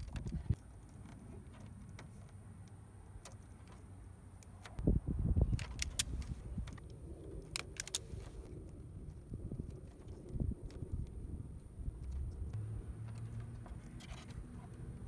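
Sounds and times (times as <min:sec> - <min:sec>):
small metal clicks: 0:00.0 - 0:04.8, 0:05.4 - 0:11.2
wire rustling: 0:00.0 - 0:04.8.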